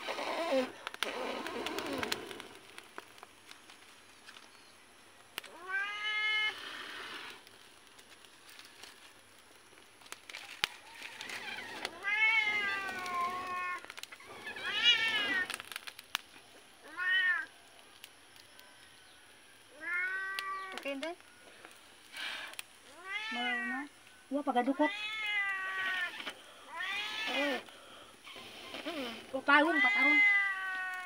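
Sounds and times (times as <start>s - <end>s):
cat meowing: 5.5s - 6.6s, 19.8s - 20.8s, 22.9s - 23.7s, 24.9s - 27.6s, 29.6s - 31.0s.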